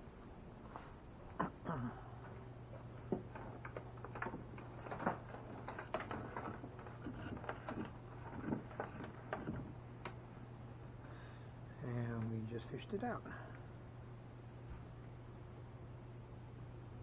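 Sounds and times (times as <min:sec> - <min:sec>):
steady low hum: 0:00.0 - 0:17.0
hands handling wiring and fittings: 0:02.2 - 0:10.2.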